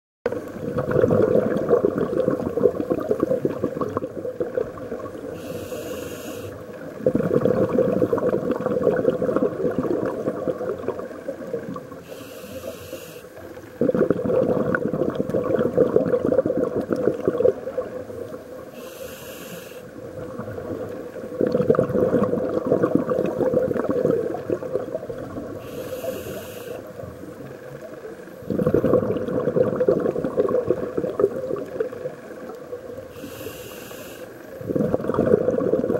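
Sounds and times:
exhaled bubbles crackling underwater: 0.3 - 35.9
regulator inhale hiss: 5.2 - 6.8, 11.9 - 13.6, 18.6 - 20.0, 25.5 - 27.1, 33.0 - 34.6.

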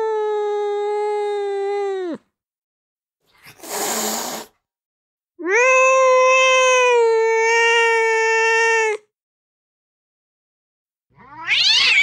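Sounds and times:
cat hissing: 3.3 - 4.6
cat yowling: 5.4 - 9.0, 11.2 - 12.0.

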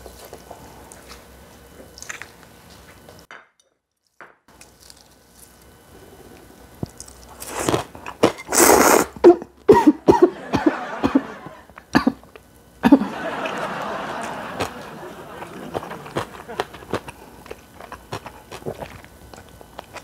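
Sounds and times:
chewing and crunching: 0.0 - 3.3, 4.5 - 9.0, 13.5 - 20.0
loud slurp of noodles: 7.4 - 9.2.

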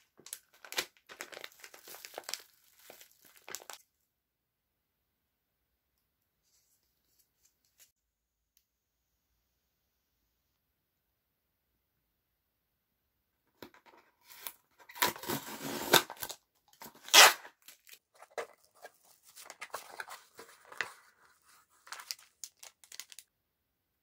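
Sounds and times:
plastic wrapping crinkling: 0.0 - 3.8, 14.4 - 23.3
packing tape tearing: 14.3 - 18.0.

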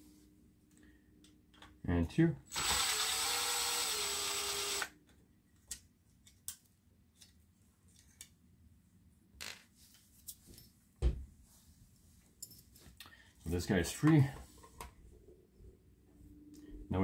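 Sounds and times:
cordless drill spinning: 2.5 - 4.9.

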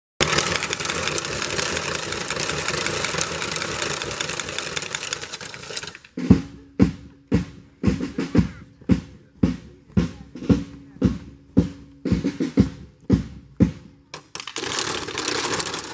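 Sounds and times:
drum beating march pulse: 0.2 - 15.9
drum roll: 0.2 - 15.9.

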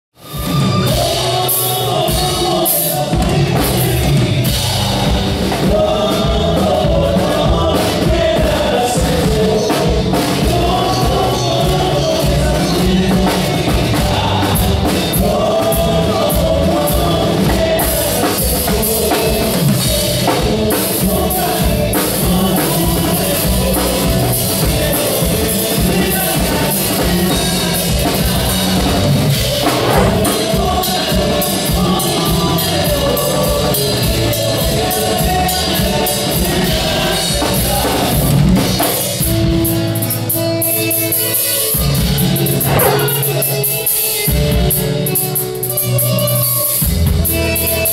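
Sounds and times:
drum kit beat: 0.2 - 40.8, 41.5 - 46.0
electric guitar: 0.2 - 47.9
men singing together: 0.7 - 39.7, 42.2 - 44.1
strummed acoustic guitars: 24.7 - 38.5.

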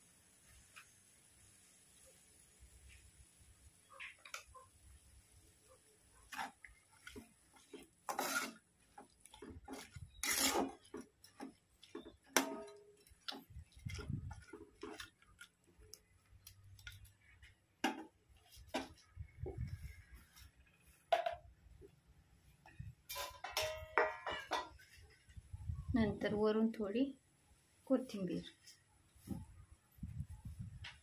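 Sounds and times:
metal spatula scraping a pan: 6.3 - 15.1.

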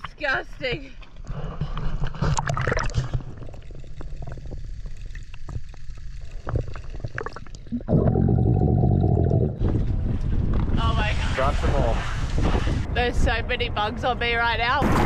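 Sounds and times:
underwater clicks and crackles: 0.0 - 10.8
water bubbling: 2.0 - 10.0.

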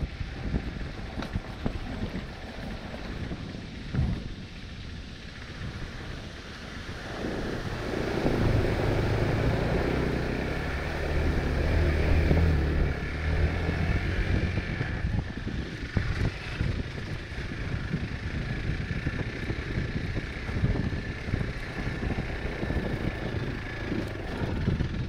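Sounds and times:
motorcycle engine running: 0.0 - 25.0
wind buffeting microphone: 0.0 - 25.0.

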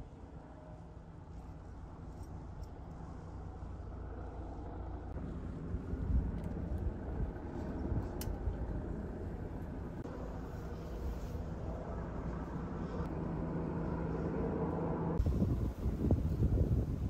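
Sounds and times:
wind buffeting microphone: 5.1 - 10.1, 14.9 - 17.0.

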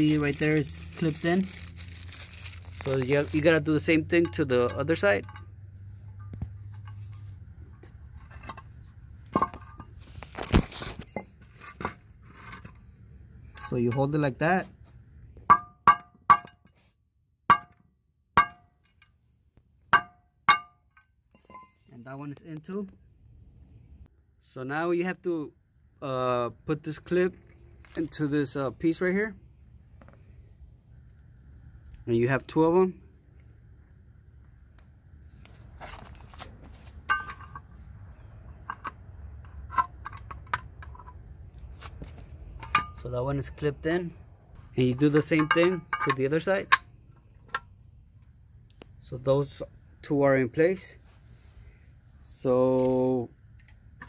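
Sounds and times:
hammer striking metal pin: 15.5 - 16.7, 17.5 - 17.8, 18.4 - 18.9, 19.9 - 21.8, 45.3 - 46.9.

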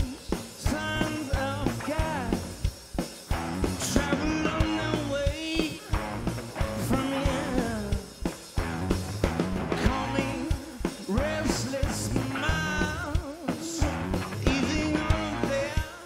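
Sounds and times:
rock band playing live: 0.0 - 16.0.

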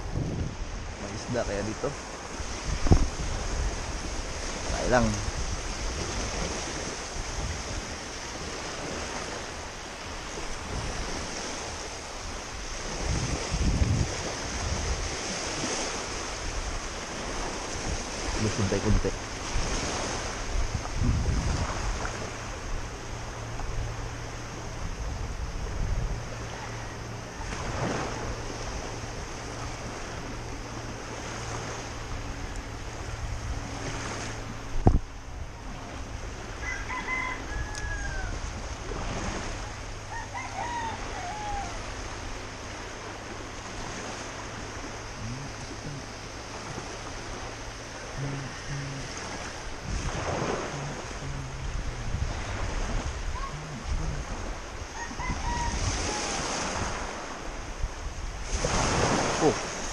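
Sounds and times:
waves washing over rocks: 0.0 - 26.4, 27.4 - 36.7, 37.8 - 59.9
wind on microphone: 0.0 - 59.9
faint bird calls: 47.8 - 49.8, 50.6 - 56.6.

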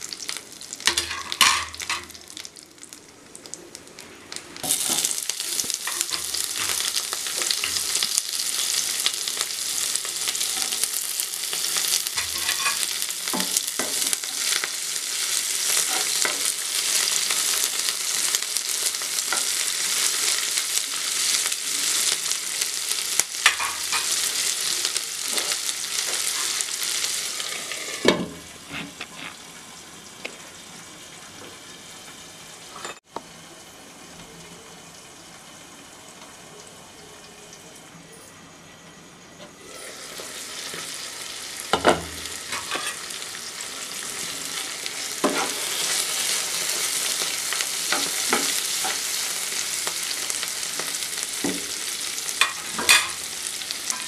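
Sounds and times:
onions sizzling in hot oil: 0.0 - 37.7, 38.7 - 54.0
metal spoon scraping a wok: 12.2 - 12.9, 42.5 - 43.1, 45.2 - 46.0.

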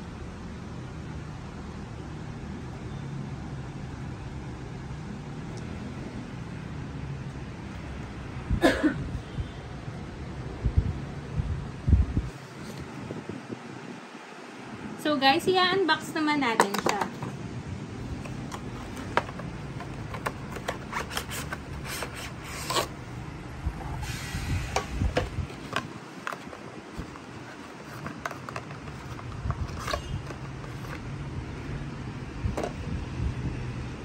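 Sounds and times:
plastic packaging being handled: 18.1 - 23.0, 25.1 - 31.1.

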